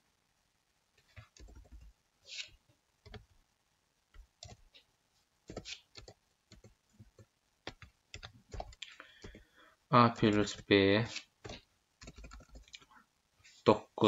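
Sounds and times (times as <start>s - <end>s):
keyboard keys clicking: 5.5s - 9.4s, 11.4s - 12.8s.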